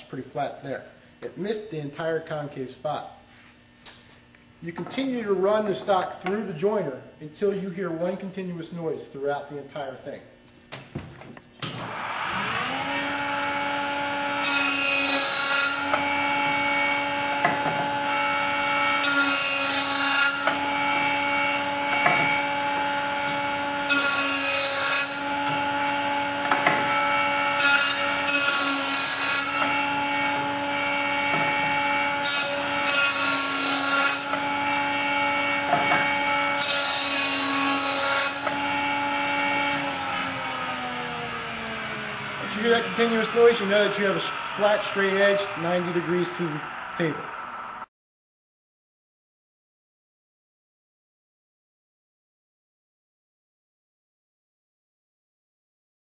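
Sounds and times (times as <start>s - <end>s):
board cutting on jointer: 11.6s - 46.9s
jointer motor humming: 38.4s - 47.4s.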